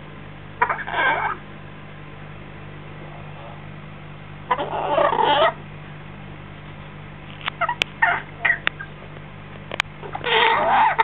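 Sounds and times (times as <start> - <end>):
parrot chick calling: 0.6 - 1.4, 4.5 - 5.6, 7.6 - 9.0, 10.0 - 11.0
parrot squeaks: 0.6 - 1.4, 4.5 - 5.6, 10.0 - 11.0.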